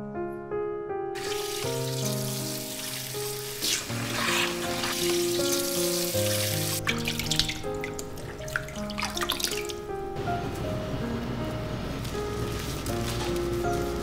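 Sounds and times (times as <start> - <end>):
background music with held notes: 0.0 - 14.0
water running from sprayer: 1.2 - 9.6
light wet splashing: 1.2 - 9.8.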